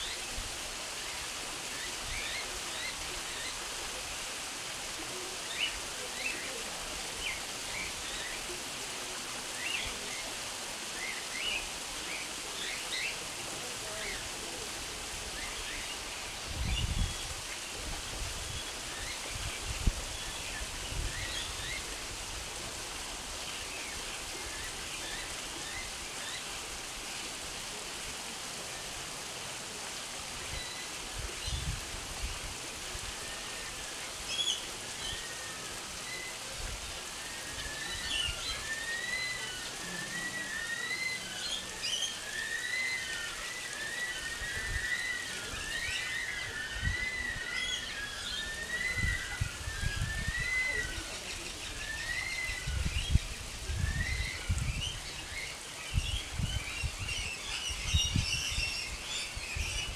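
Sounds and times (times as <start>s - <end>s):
steady hiss: 0.0s - 59.9s
small birds chirping: 33.4s - 36.5s, 37.2s - 59.9s.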